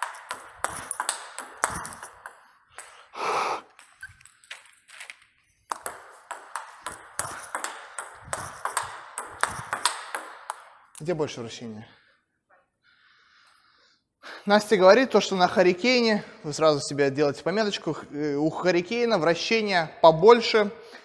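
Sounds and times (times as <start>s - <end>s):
table tennis ball clicking: 0.0s - 3.0s, 5.7s - 10.7s.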